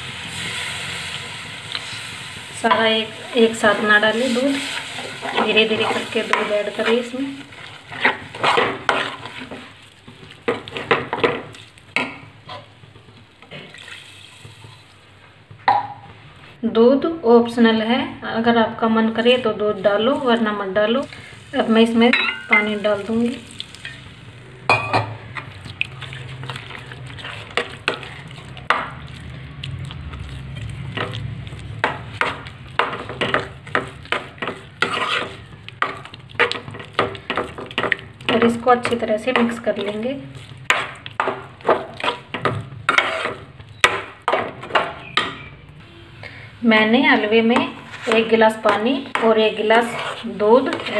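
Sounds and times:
light frying sizzle: 0.0s - 16.6s, 18.9s - 50.9s
metal spatula scraping pan: 2.7s - 9.8s, 25.4s - 28.8s, 30.4s - 45.5s, 47.2s - 50.9s.

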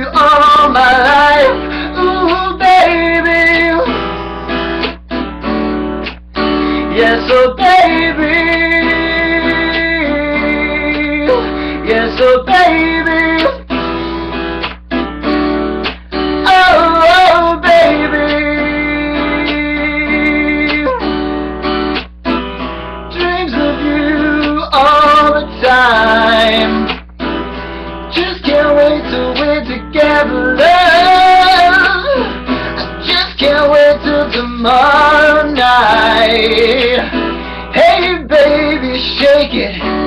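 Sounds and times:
man singing: 0.0s - 4.0s, 6.8s - 13.7s, 16.4s - 21.1s, 23.1s - 26.9s, 28.1s - 40.0s
acoustic guitar strumming: 0.0s - 40.0s.

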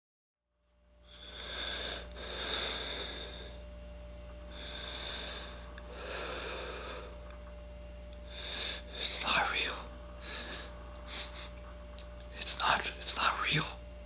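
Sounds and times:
steady low hum: 0.5s - 14.0s
slow heavy breathing: 1.0s - 3.7s, 4.4s - 7.4s, 8.2s - 11.8s.

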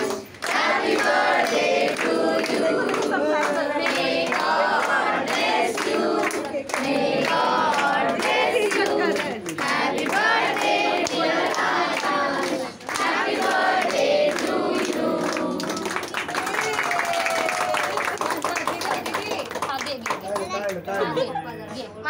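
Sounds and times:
group of people singing: 0.0s - 16.3s
hand clapping: 0.0s - 20.8s.

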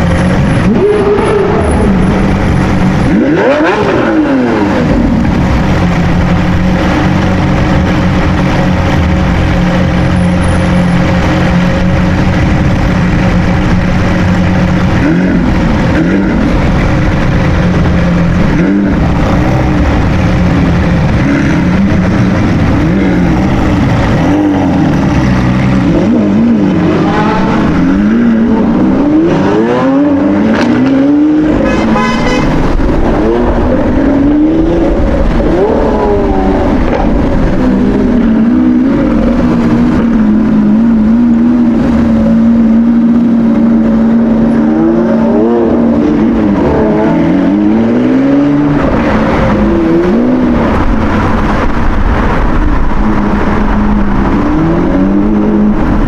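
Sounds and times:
car engine revving: 0.0s - 56.0s
car accelerating through gears: 0.6s - 5.2s.

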